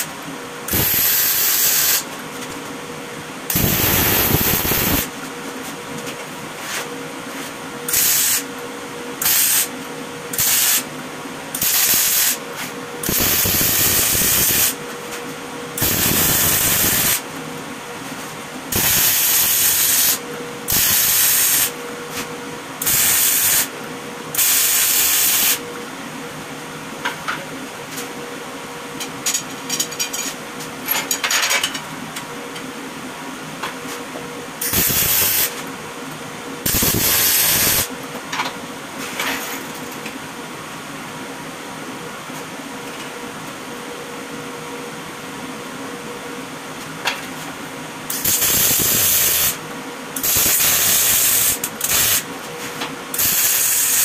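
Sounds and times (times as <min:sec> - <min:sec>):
steady hum: 0:00.0 - 0:30.9
welding arc crackling: 0:00.7 - 0:02.0, 0:03.5 - 0:05.1, 0:07.9 - 0:08.5, 0:11.6 - 0:12.4, 0:13.0 - 0:14.8, 0:15.8 - 0:17.2, 0:18.7 - 0:21.7, 0:34.6 - 0:35.5, 0:36.7 - 0:37.9, 0:48.1 - 0:49.6, 0:50.2 - 0:52.2, 0:53.2 - 0:54.0.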